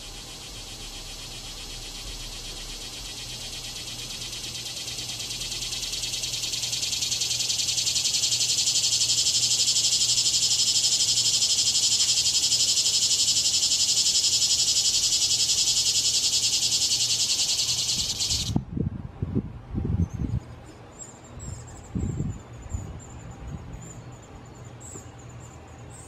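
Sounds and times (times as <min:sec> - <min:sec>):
animal's high pulsing buzz: 0:00.0 - 0:18.6.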